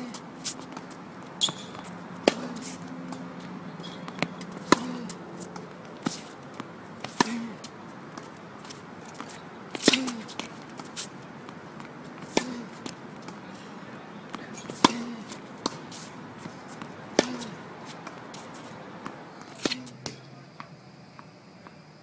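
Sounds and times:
racket hitting tennis ball: 0.0 - 20.3
ball bouncing on hard court: 0.7 - 7.5.

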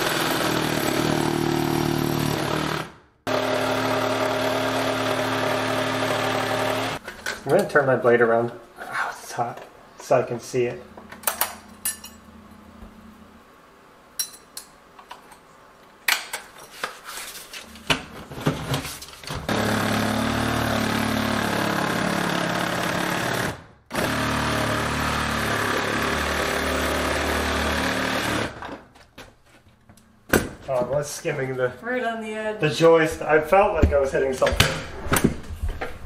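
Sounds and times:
reciprocating saw cutting plywood: 0.0 - 7.0, 19.5 - 28.6.

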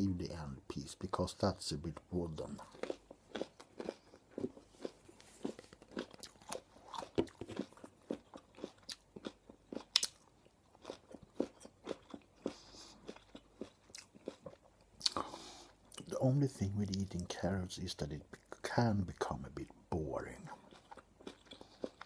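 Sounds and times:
chewing raw carrot crunches: 2.3 - 15.2, 20.5 - 22.0.

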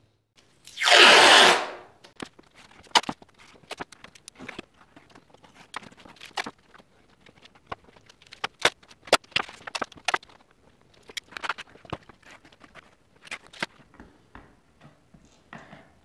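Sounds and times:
masking tape pulled and torn: 0.6 - 1.9.

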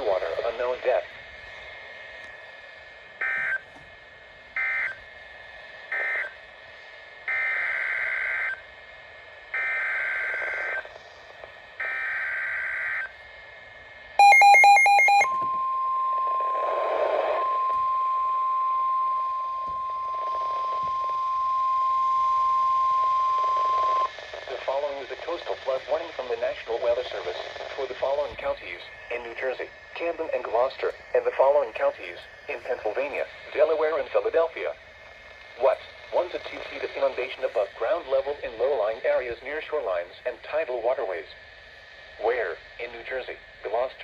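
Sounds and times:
steady warning alarm tone: 3.2 - 3.8, 4.5 - 5.0, 5.9 - 6.4, 7.2 - 8.7, 9.5 - 10.9, 11.8 - 13.2, 14.2 - 24.1
electronic beeps: 14.2 - 24.1.

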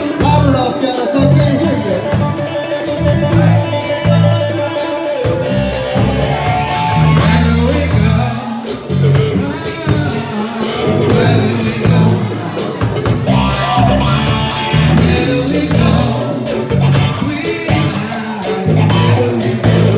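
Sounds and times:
man singing into a microphone: 0.0 - 2.2, 7.2 - 14.1, 14.9 - 19.9
drum kit beat on cymbals: 0.0 - 19.9
electric guitar: 0.0 - 19.9
low bass notes: 0.0 - 19.9.

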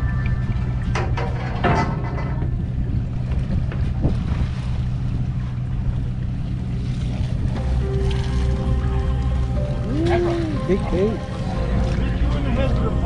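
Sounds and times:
wind noise on microphone: 0.0 - 9.2
boat engine droning: 0.0 - 13.0.

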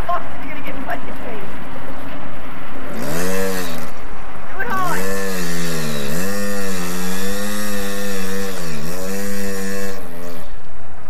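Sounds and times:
dirt bike engine revving: 2.8 - 10.7
wheel spinning in grass and dirt: 2.9 - 11.0.

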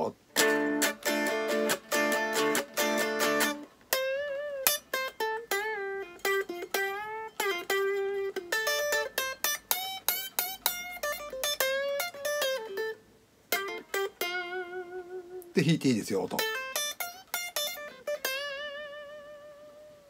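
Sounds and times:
electric guitar lead phrase: 0.0 - 20.0.

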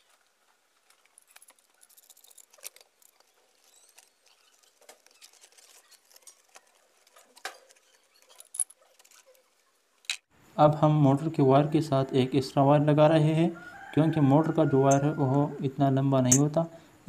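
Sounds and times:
plastic clicks and scrapes: 0.8 - 10.3.

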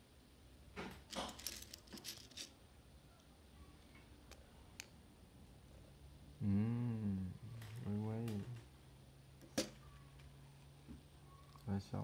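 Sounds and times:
plastic pieces clicking and clattering: 1.1 - 2.5.

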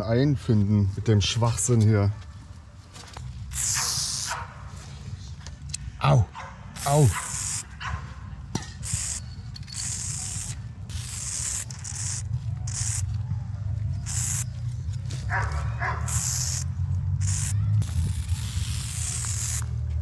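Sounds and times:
spray paint can hissing: 3.5 - 4.4, 6.8 - 7.8, 8.7 - 13.2, 13.9 - 14.7, 15.9 - 20.0.

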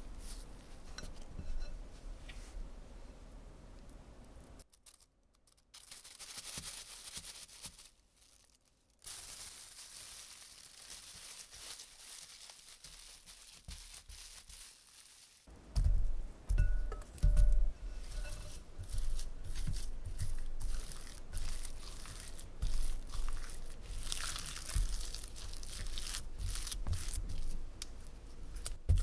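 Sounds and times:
plastic bag crinkling: 4.7 - 15.5, 18.5 - 27.6
spatula squishing through dough: 12.7 - 14.8, 15.8 - 29.0.

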